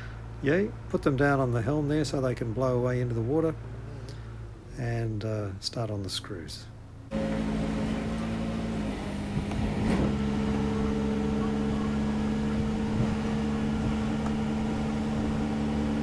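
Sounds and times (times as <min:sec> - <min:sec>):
machine humming steadily: 0:06.8 - 0:16.0.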